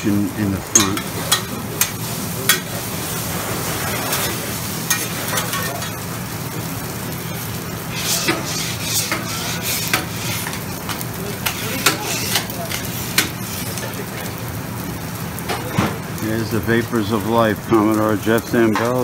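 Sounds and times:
food sizzling on a griddle: 0.0 - 19.0
utensils scraping steel surface: 7.9 - 13.9.

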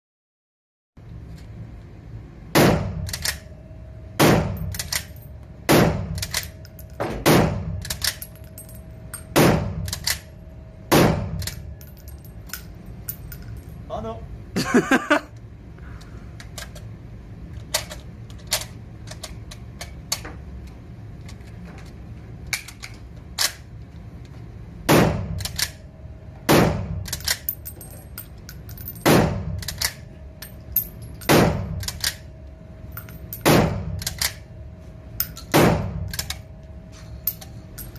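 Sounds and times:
metallic clicks of rifle handling: 4.7 - 5.2, 29.6 - 30.5.

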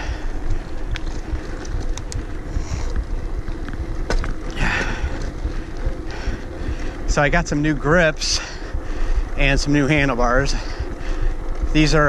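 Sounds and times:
sharp clicks from bike: 0.0 - 7.8
bike tyre rumble: 0.0 - 12.0
wind buffeting microphone: 0.0 - 12.0.

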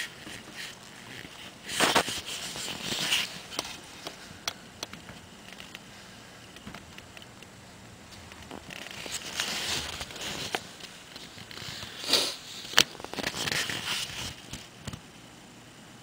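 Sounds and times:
handling noise rustling: 0.0 - 7.3, 8.0 - 15.0
sharp clicks and knocks: 3.5 - 5.8.

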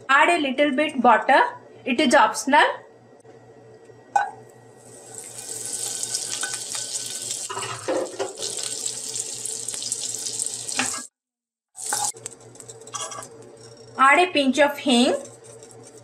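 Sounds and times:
butter sizzling in hot oil: 4.8 - 11.1, 11.8 - 13.3.

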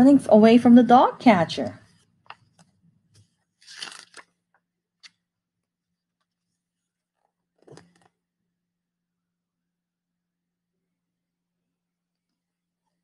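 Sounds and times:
paper rustling: 2.3 - 4.4.

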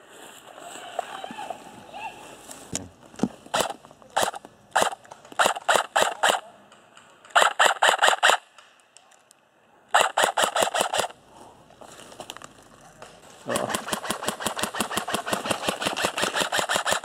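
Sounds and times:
airsoft rifle shots: 3.5 - 6.6, 7.3 - 8.7, 9.9 - 11.2, 13.5 - 17.0.

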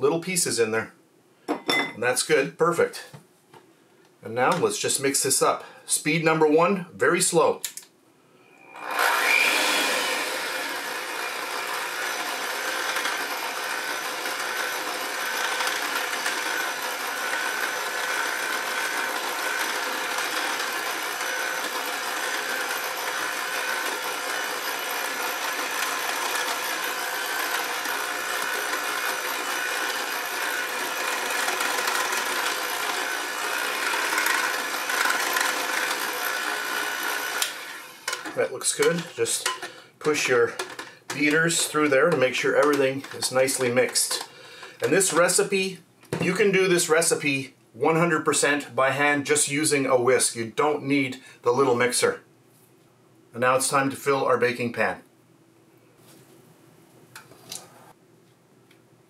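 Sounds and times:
electric hand mixer running: 8.6 - 45.4.

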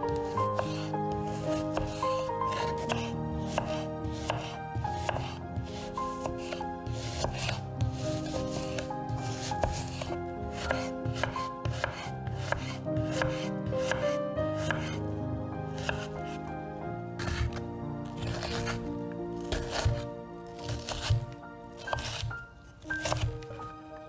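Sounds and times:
background music: 0.0 - 24.0
knife slicing onion on board: 0.2 - 15.0, 15.8 - 16.1, 17.2 - 17.6, 18.2 - 18.8, 19.4 - 21.2, 21.8 - 22.3, 22.9 - 23.4.

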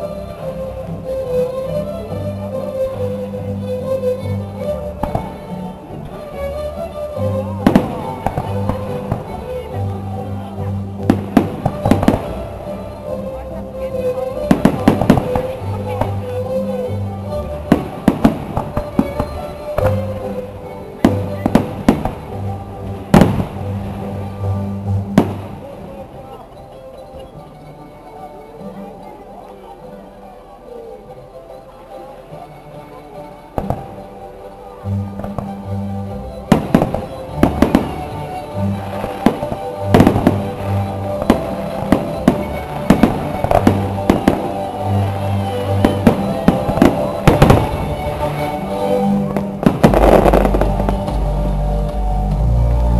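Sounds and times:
music with long held notes: 0.0 - 52.9
firework crackle: 11.0 - 12.6, 14.4 - 16.2, 36.5 - 52.1
firework bangs: 14.5 - 16.1, 38.8 - 45.1, 45.8 - 48.3, 49.3 - 51.2
music with held bass notes: 37.7 - 52.9.

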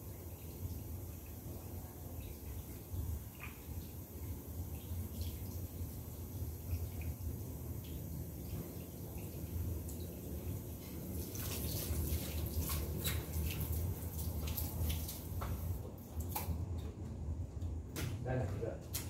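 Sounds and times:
water drops splashing on paving: 10.8 - 17.0.

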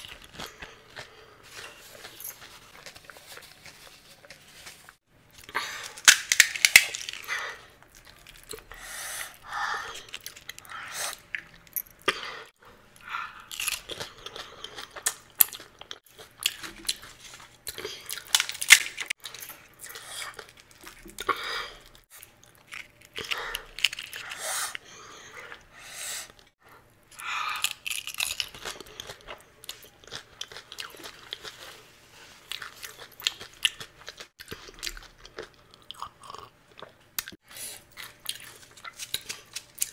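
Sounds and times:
crisp shells cracking when bitten: 5.9 - 7.3.

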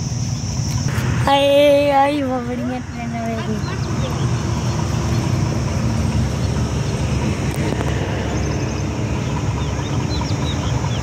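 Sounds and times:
distant locomotive rumble: 0.0 - 11.0
bird chirps: 8.1 - 11.0.

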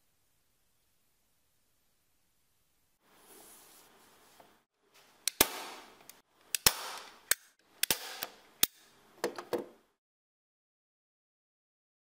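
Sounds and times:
staple gun snapping: 5.3 - 8.9.

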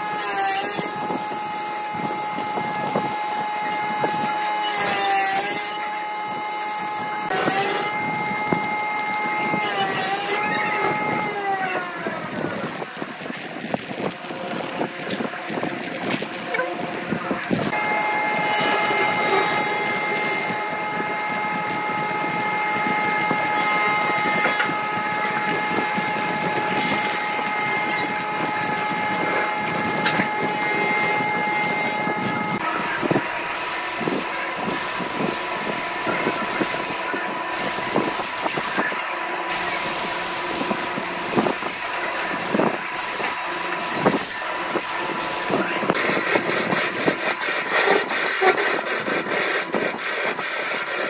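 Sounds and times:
sandpaper rubbing spinning wood: 0.0 - 14.1, 17.4 - 51.0
wood lathe whine: 0.0 - 14.6, 16.6 - 51.0
scraper hissing on spinning wood: 39.5 - 51.0.

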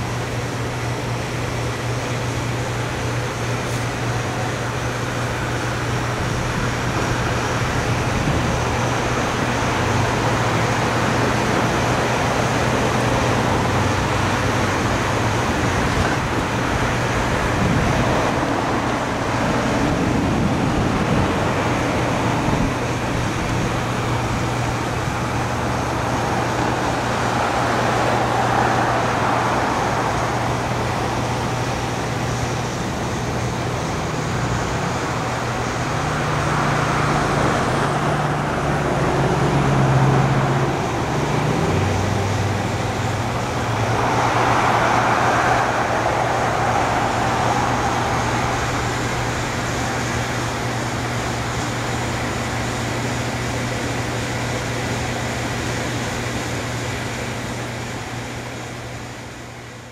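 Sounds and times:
freight train rumbling over bridge: 0.0 - 59.9.

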